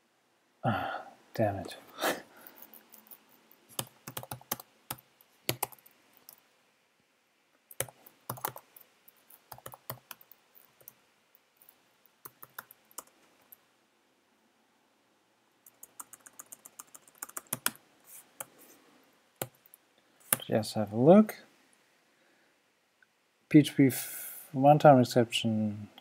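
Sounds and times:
keyboard typing: 0:02.5 - 0:06.4, 0:07.7 - 0:11.0, 0:12.2 - 0:13.6, 0:15.6 - 0:17.8, 0:19.4 - 0:20.5.

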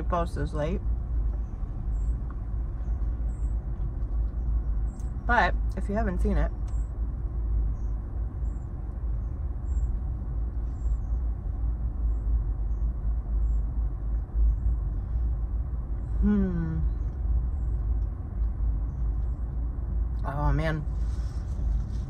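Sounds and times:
short vocal sound: 0:16.2 - 0:16.9.

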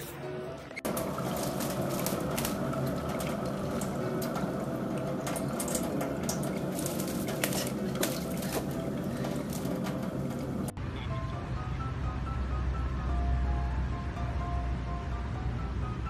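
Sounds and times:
water spattering ticks: 0:00.9 - 0:10.7.

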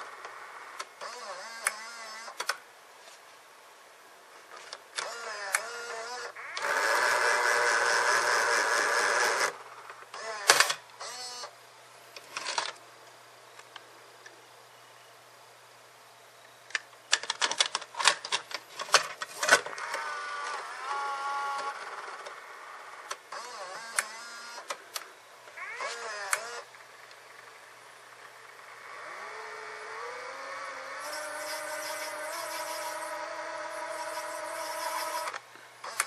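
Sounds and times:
steady tape mechanism hum: 0:00.0 - 0:36.0
cassette mechanism whirring: 0:04.6 - 0:11.5, 0:16.7 - 0:27.5, 0:28.1 - 0:36.0
plastic clicks and clacks: 0:16.7 - 0:19.6.

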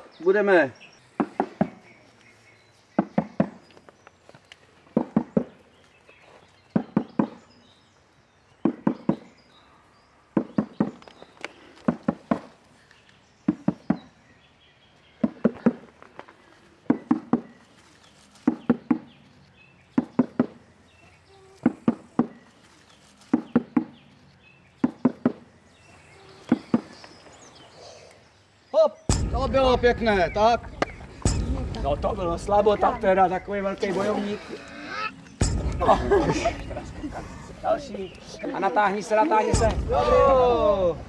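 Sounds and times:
drum beaten in rhythm: 0:29.1 - 0:33.4, 0:35.4 - 0:37.8, 0:39.5 - 0:41.0.

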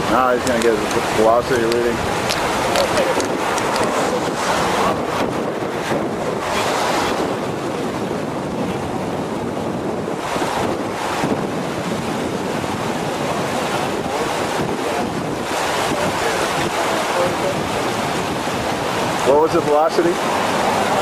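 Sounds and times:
floodwater rushing: 0:00.0 - 0:21.0.

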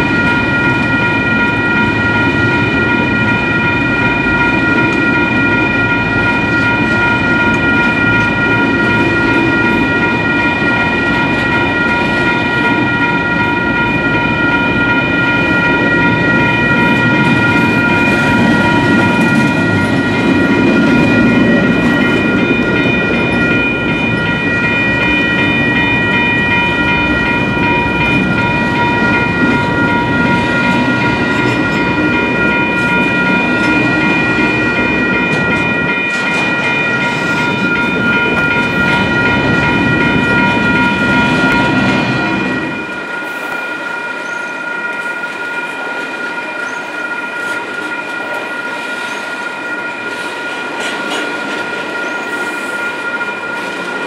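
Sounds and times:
high-pitched ringing: 0:00.0 - 0:54.0
train wheels rumbling and clattering: 0:00.0 - 0:54.0.

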